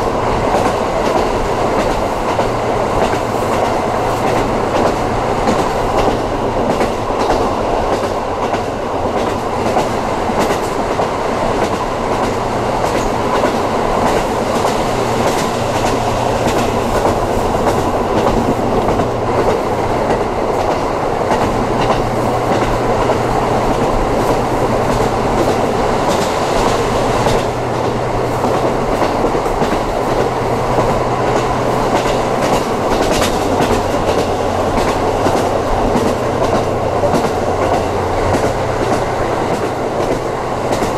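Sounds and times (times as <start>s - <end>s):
wheels clicking over rail joints: 0.0s - 40.9s
wheels rumbling on rail: 0.0s - 40.9s.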